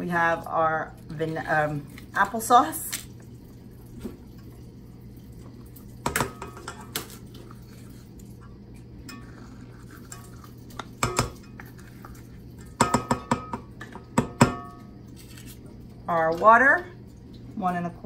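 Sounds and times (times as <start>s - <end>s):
spatula knocking metal bowl: 11.0s - 11.4s, 12.8s - 14.8s.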